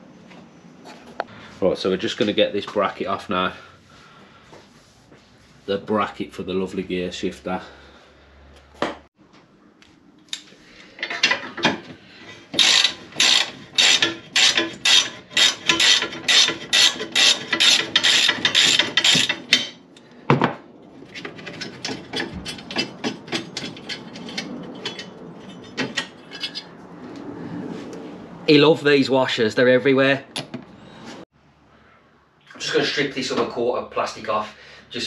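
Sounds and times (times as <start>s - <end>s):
ratchet wrench clicking: 12.6s - 19.7s.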